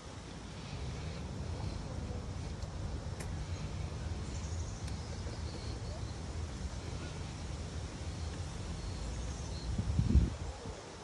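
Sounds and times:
faint high bird chirps: 0:03.4 - 0:10.0
wind rumble on microphone: 0:04.0 - 0:11.0.

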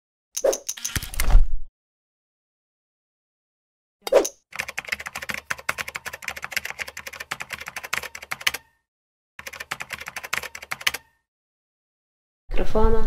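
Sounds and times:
key clicks typing: 0:04.1 - 0:08.8, 0:09.4 - 0:11.2.

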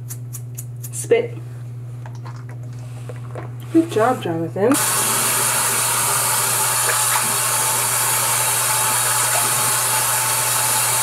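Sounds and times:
tap water rushing into basin: 0:04.7 - 0:11.0.

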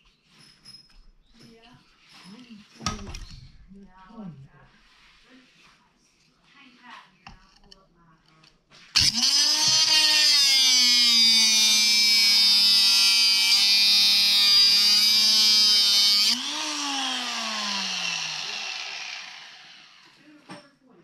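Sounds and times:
angle grinder cutting metal: 0:09.0 - 0:20.2.

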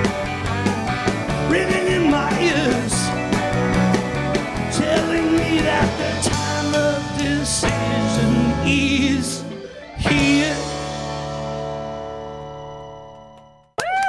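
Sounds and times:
rock band playing live: 0:00.0 - 0:13.6
person singing: 0:01.4 - 0:03.3, 0:04.7 - 0:11.2.

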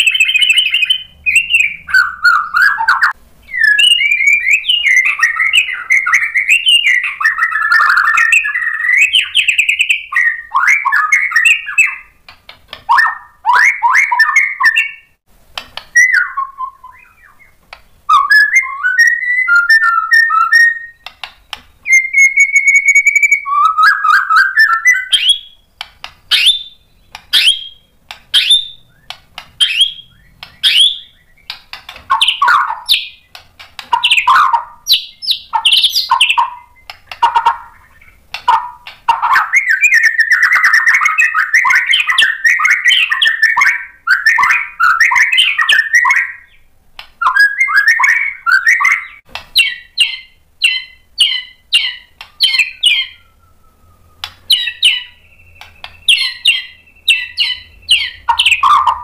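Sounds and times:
bird singing and warbling: 0:00.0 - 0:59.0
held steady whistle: 0:52.4 - 0:55.6.

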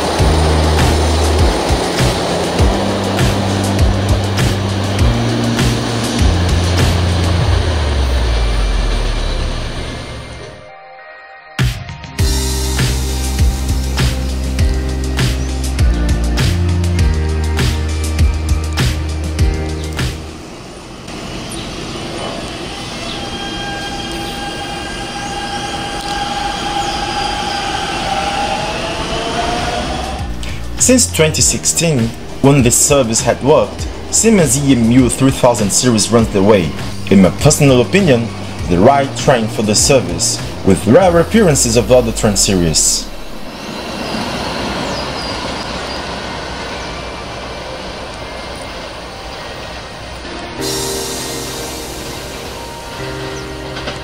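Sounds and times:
electric train running: 0:00.0 - 0:10.9, 0:12.2 - 0:54.0
short rising whistles: 0:21.4 - 0:30.7, 0:43.0 - 0:49.9.

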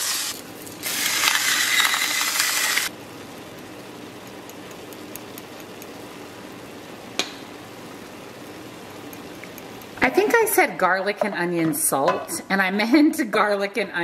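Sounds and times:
electric grinder whirring: 0:00.0 - 0:02.9
meat cooking hiss: 0:00.0 - 0:02.9.

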